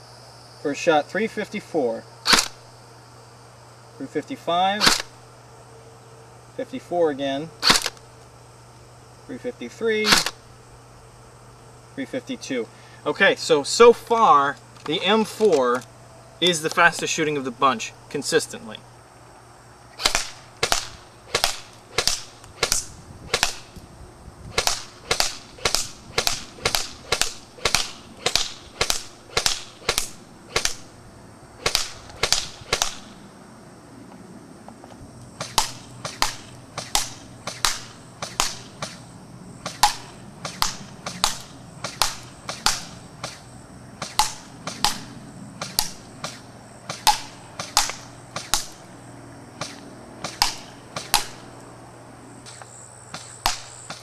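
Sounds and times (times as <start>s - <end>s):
airsoft rifle shots: 2.2s - 2.6s, 4.7s - 5.2s, 7.6s - 8.0s, 10.0s - 10.4s, 20.0s - 23.8s, 24.5s - 31.0s, 31.6s - 33.2s, 35.4s - 48.9s, 49.6s - 51.5s, 52.5s - 54.0s.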